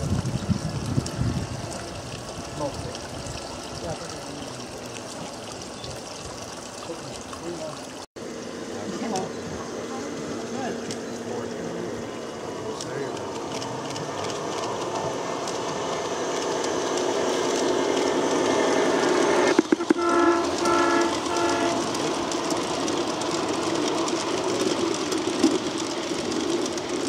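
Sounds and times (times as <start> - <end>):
model train wheels clattering: 12.7 - 27.0
short train horn blasts: 19.8 - 22.1.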